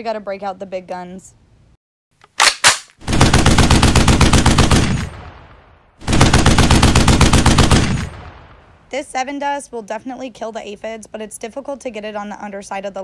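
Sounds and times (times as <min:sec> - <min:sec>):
sharp gun clicks: 0:02.2 - 0:03.0
machine-gun bursts with echo: 0:02.4 - 0:05.4, 0:06.0 - 0:08.4.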